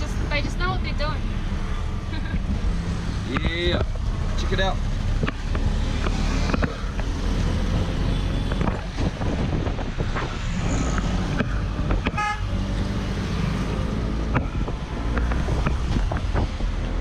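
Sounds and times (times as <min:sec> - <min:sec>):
vehicle horn toot: 0:12.1 - 0:12.5.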